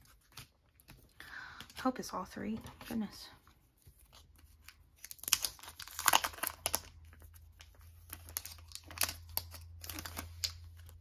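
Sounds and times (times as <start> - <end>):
plastic wrapping crinkling: 3.9 - 11.0.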